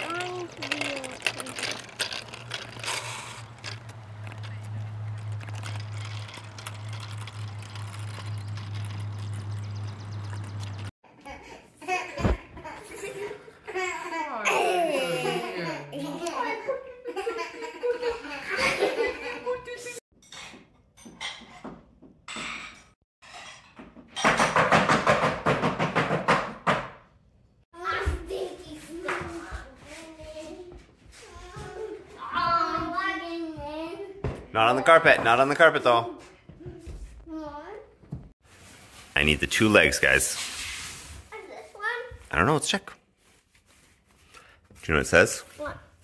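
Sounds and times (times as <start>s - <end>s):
bicycles rolling on pavement: 0.0s - 10.9s
small clicks and rattles: 0.0s - 10.9s.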